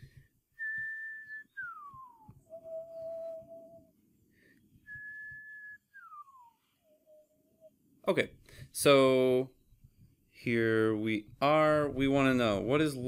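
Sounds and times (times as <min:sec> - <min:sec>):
person whistling: 0:00.2 - 0:03.9, 0:04.8 - 0:07.7.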